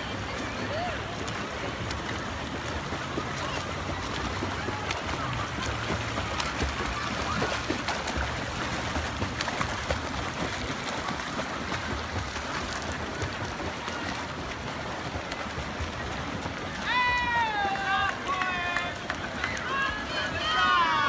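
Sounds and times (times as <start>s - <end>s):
swimmers splashing water: 0.0s - 21.0s.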